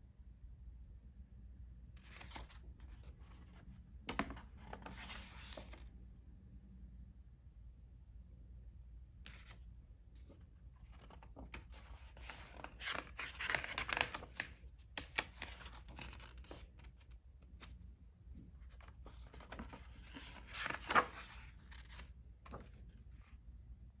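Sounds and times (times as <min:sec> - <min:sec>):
book pages rustling: 0:02.0 - 0:05.8, 0:10.2 - 0:17.7, 0:18.6 - 0:23.1.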